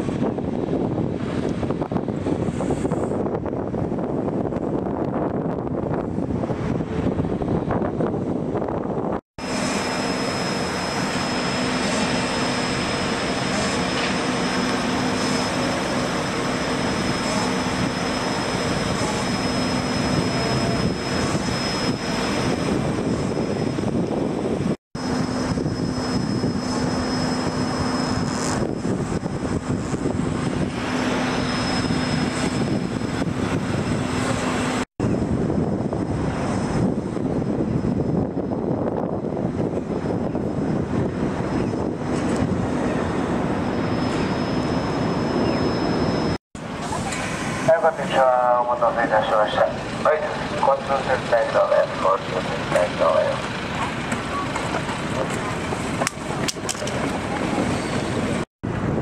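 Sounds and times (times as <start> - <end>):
diesel machinery droning: 0.0 - 59.0.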